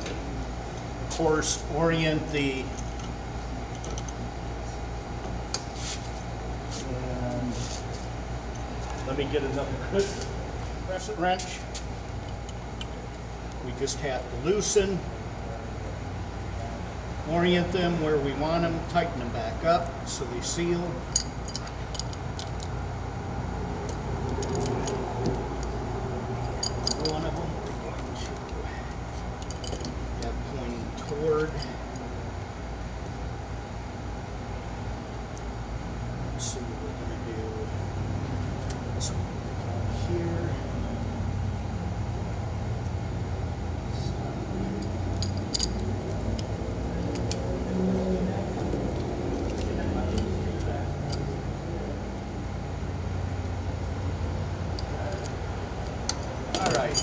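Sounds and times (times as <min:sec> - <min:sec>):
steady low hum: 0:00.0 - 0:57.0
wrenches clinking on metal fittings: 0:26.4 - 0:27.4, 0:44.8 - 0:45.9, 0:56.1 - 0:57.0.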